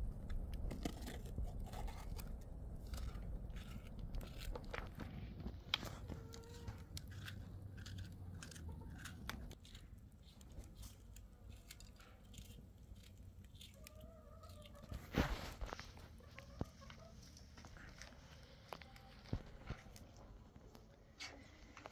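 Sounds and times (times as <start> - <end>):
knife cutting bell pepper: 0.6 - 5.1, 5.7 - 15.0.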